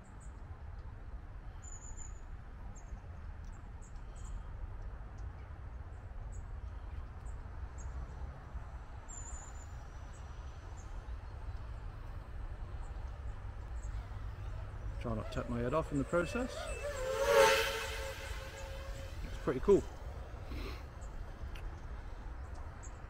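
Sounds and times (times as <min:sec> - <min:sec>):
low outdoor rumble: 0:00.0 - 0:23.0
small birds chirping: 0:09.0 - 0:23.0.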